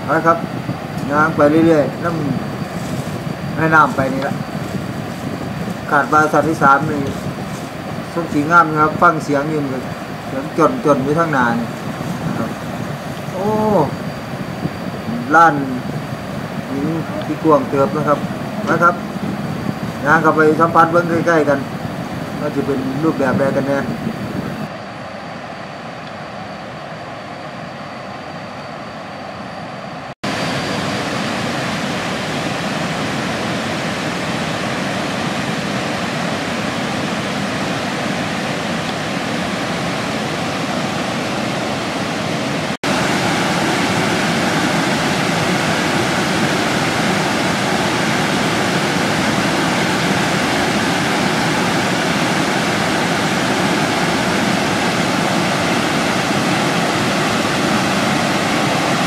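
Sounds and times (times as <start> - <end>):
waterfall rushing over rock: 1.0 - 14.0, 30.3 - 59.0.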